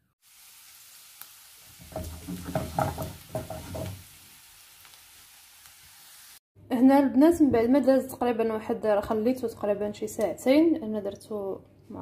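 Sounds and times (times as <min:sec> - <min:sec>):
beans sizzling in frying pan: 0:00.2 - 0:06.4
stirring knocks and scrapes: 0:01.8 - 0:04.1.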